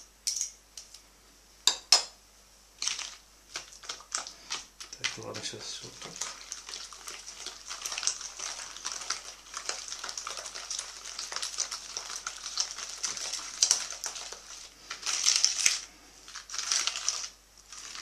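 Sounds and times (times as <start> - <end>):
wire whisk beating batter in bowl: 2.8 - 18.0.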